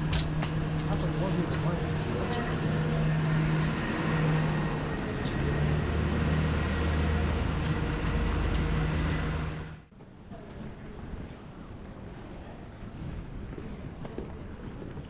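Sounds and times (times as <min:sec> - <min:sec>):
bus engine idling: 0:00.0 - 0:09.9.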